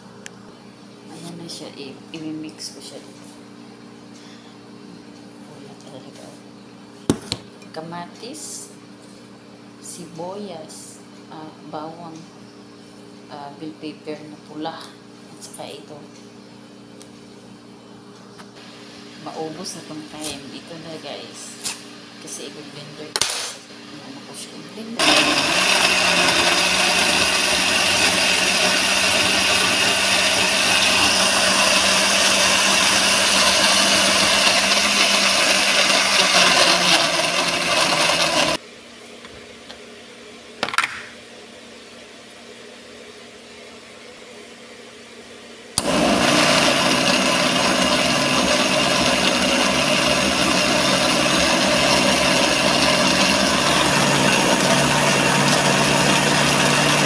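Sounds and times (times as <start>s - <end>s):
electric blender running: 25.0s - 38.6s, 45.8s - 57.0s.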